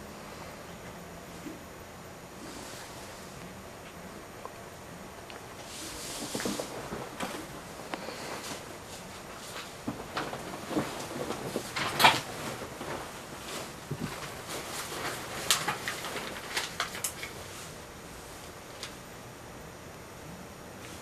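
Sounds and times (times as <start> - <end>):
knocks and rustles on a bed: 8.4 - 16.4.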